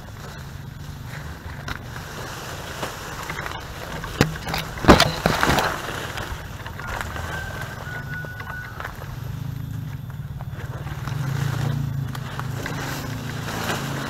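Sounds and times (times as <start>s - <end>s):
twigs crackling: 0.0s - 14.0s
footsteps through dry leaves: 4.6s - 14.0s.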